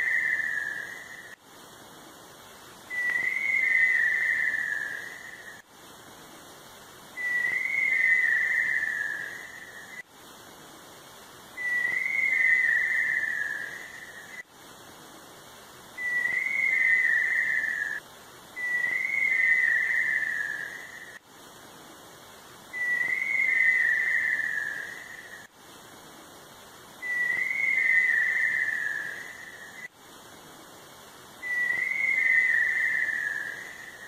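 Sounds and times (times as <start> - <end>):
bird quavering whistled calls: 0.0 - 1.4, 2.9 - 5.6, 7.2 - 10.0, 11.6 - 14.4, 16.0 - 18.0, 18.6 - 21.2, 22.8 - 25.5, 27.0 - 29.9, 31.4 - 34.0.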